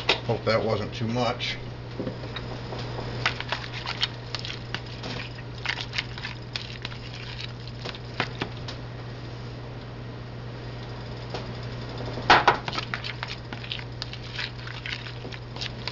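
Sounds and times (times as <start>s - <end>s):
spoon stirring in a bowl: 3.1s - 8.6s, 12.6s - 15.9s.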